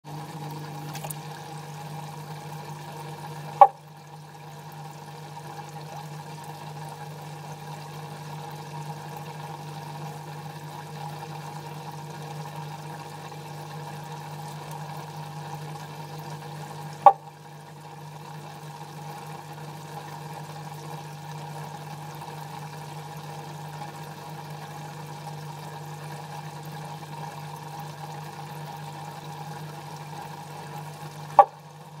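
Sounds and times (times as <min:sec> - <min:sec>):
low hum: 0:00.0 - 0:04.1
trickling water: 0:00.0 - 0:32.0
frog bok calls: 0:03.5 - 0:03.8, 0:31.3 - 0:31.7.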